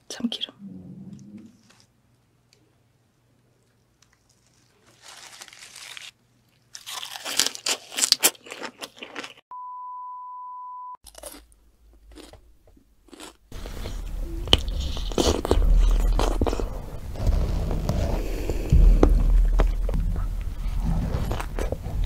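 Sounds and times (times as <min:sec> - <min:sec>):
low rumble: 0:00.5 - 0:01.9, 0:13.5 - 0:22.0
crunchy chewing: 0:03.6 - 0:09.4, 0:11.0 - 0:12.4, 0:13.0 - 0:22.0
test-tone beep: 0:09.5 - 0:11.0
wet eating sounds: 0:13.1 - 0:22.0.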